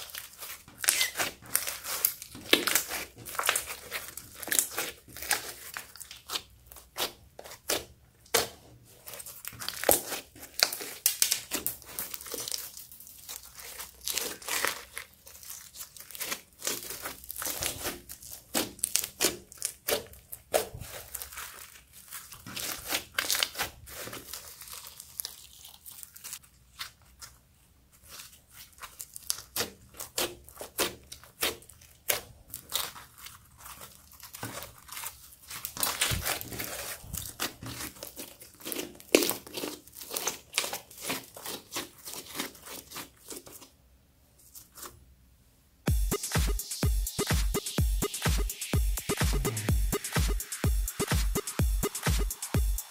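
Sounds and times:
slime crackling and popping: 0.0s - 27.2s, 28.1s - 43.0s.

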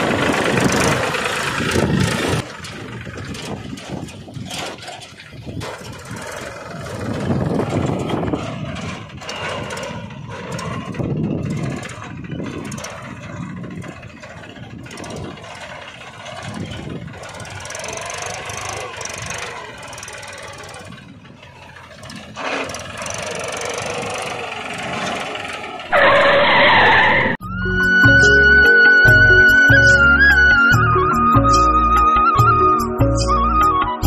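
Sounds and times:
small tractor engine running: 0.0s - 33.6s.

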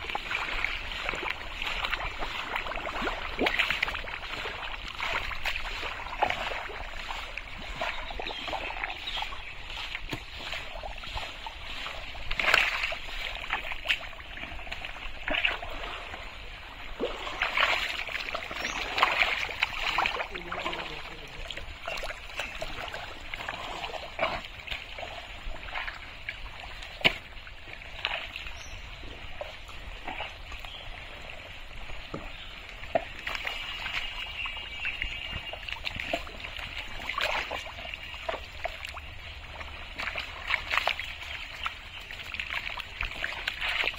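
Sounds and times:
mud sloshing and squelching: 0.0s - 43.9s
wet slaps and splashes: 0.4s - 6.8s, 11.7s - 15.7s, 26.8s - 27.4s, 39.9s - 43.9s.

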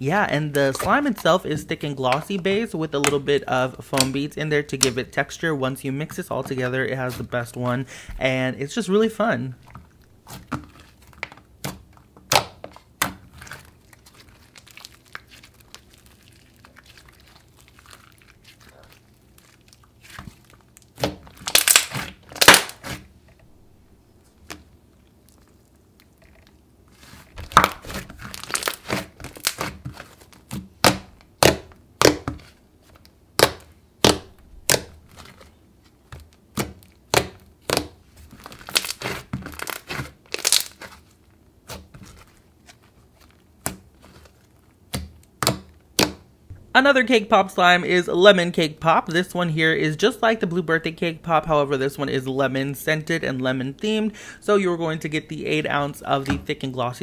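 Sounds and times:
slime popping and crackling: 10.0s - 23.0s, 24.4s - 32.5s, 36.2s - 42.5s.

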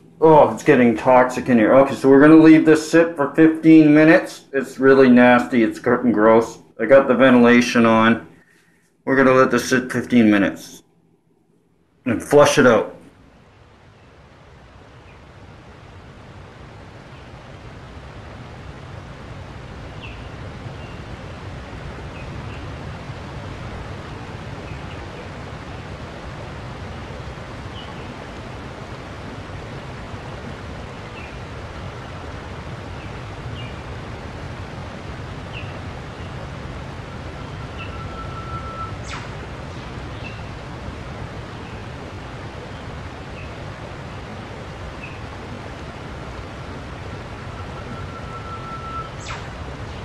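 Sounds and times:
steady rushing noise: 0.0s - 50.0s
bird chirps: 37.1s - 39.4s, 47.4s - 50.0s.

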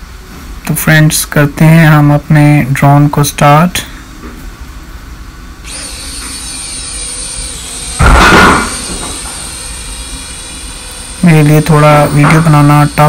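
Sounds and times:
drone motors whining: 5.6s - 13.0s
rushing air burst: 5.7s - 11.3s.

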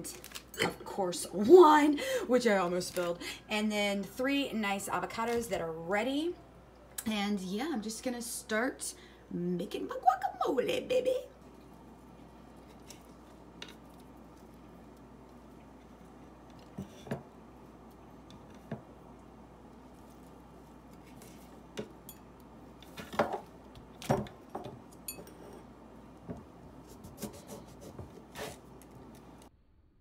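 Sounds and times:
kitchen utensils clinking on dishes: 25.0s - 25.7s.

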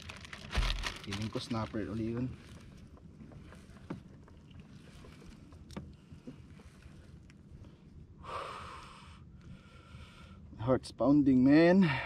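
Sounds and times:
water against kayak hull: 0.0s - 8.2s.

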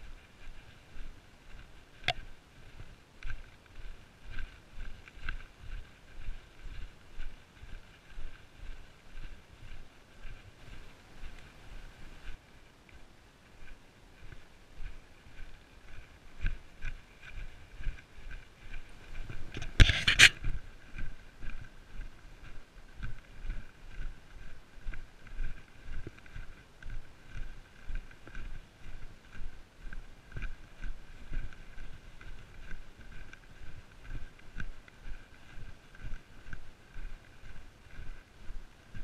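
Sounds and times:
footsteps on sandy trail: 0.0s - 39.0s
scraping rustle: 18.9s - 20.5s.

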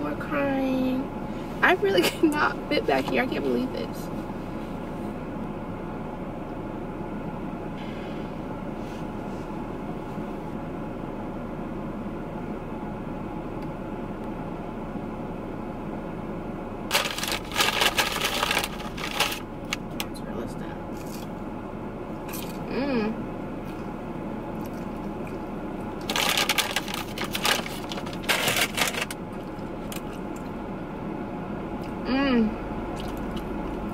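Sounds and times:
low hum inside car: 0.0s - 33.9s
paper bag crinkling: 16.9s - 19.8s, 26.0s - 29.2s.

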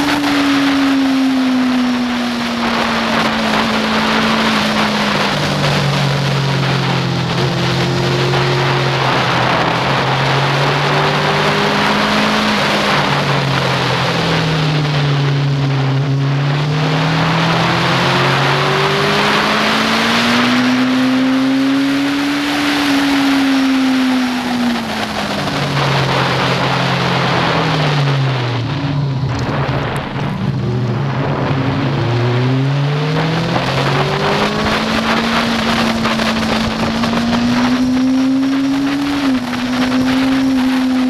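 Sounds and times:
motorcycle engine under load: 0.0s - 41.0s
wind rush: 0.0s - 41.0s.

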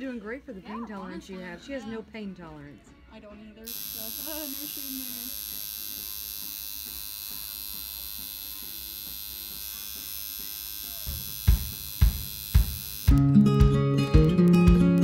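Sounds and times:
music: 2.0s - 15.0s
tattoo machine buzzing: 3.6s - 13.3s
drum beats: 11.0s - 15.0s.

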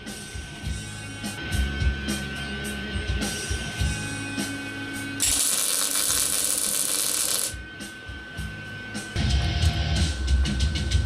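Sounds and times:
welding arc crackling hiss: 5.2s - 7.6s.

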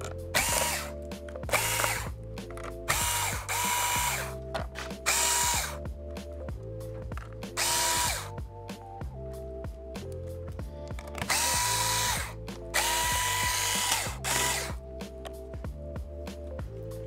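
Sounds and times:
quiet background music: 0.0s - 17.0s
electric screwdriver whirring: 0.3s - 2.1s, 2.9s - 4.4s, 5.0s - 5.8s, 7.6s - 8.3s, 11.2s - 14.8s.

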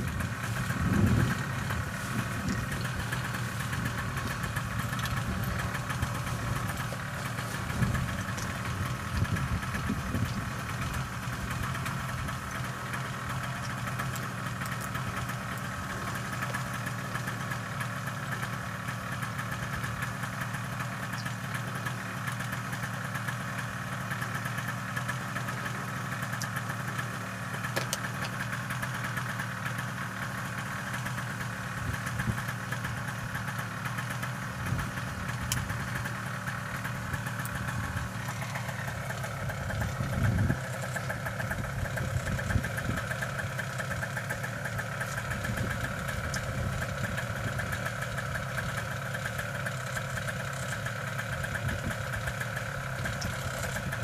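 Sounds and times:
small two-stroke engine idling: 0.0s - 54.0s.

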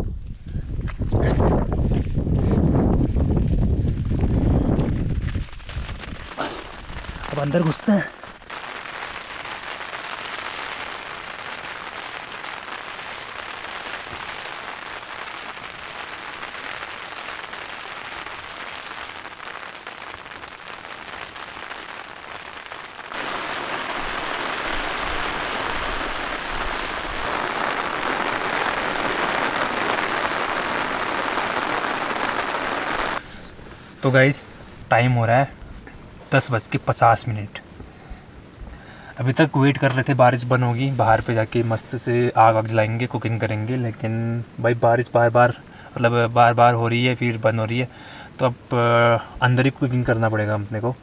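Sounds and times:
rain on tent fabric: 3.2s - 34.9s.

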